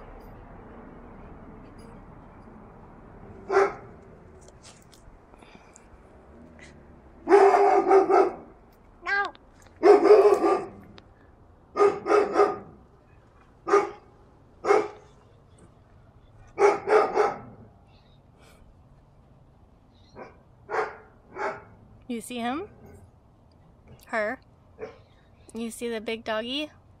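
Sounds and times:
big dog barking: 0:03.4 - 0:04.0, 0:07.2 - 0:08.6, 0:09.8 - 0:11.0, 0:11.7 - 0:12.8, 0:13.6 - 0:15.1, 0:16.5 - 0:17.7, 0:20.1 - 0:21.8.

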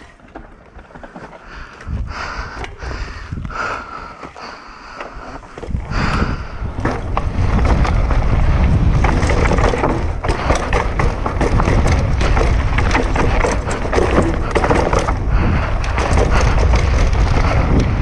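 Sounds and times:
bike rattling on rough trail: 0:00.0 - 0:18.0
wind buffeting microphone: 0:01.4 - 0:18.0.

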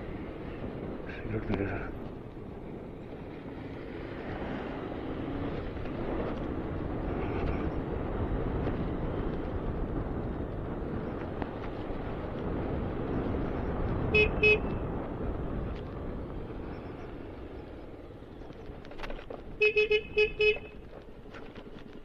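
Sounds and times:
wind: 0:00.0 - 0:22.0
motorcycle horn beeping: 0:14.1 - 0:14.8, 0:19.6 - 0:20.8.

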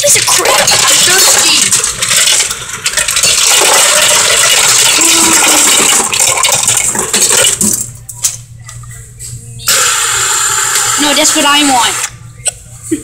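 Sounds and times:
ice cubes clattering into cup: 0:00.0 - 0:07.8.

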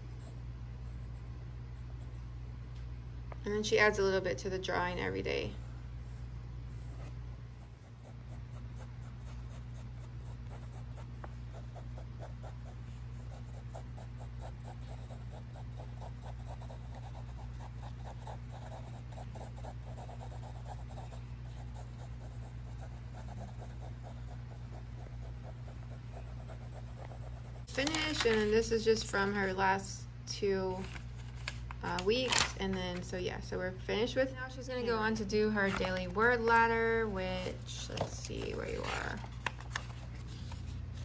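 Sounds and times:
steady low hum: 0:00.0 - 0:41.0
pencil scratching on paper: 0:05.4 - 0:28.1.

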